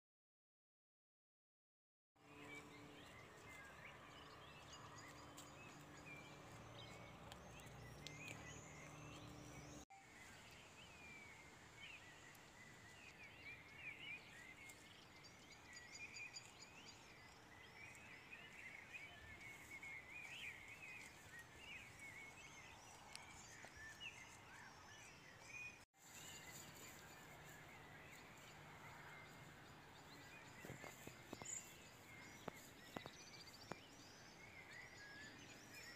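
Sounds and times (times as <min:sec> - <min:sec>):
small birds chirping: 0:02.2 - 0:35.9.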